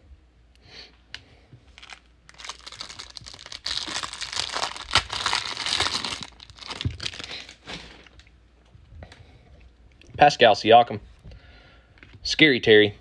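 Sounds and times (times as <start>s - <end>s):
plastic wrapper tearing and crinkling: 1.7s - 8.3s.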